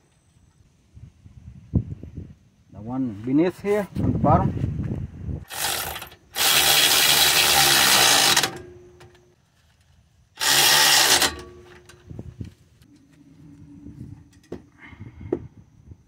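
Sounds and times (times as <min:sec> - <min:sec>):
impact wrench bursts: 0:05.5 - 0:09.0, 0:10.4 - 0:11.9.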